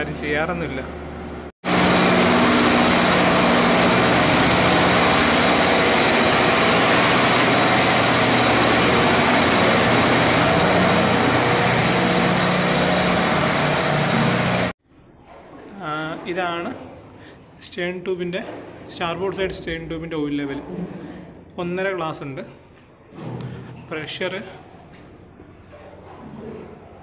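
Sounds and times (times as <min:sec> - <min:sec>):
marine diesel engine running: 0:01.0 - 0:14.8.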